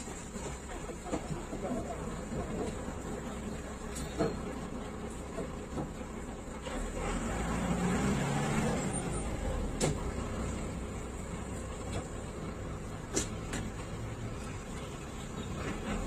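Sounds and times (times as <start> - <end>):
bus engine rumbling: 0.0 - 16.0.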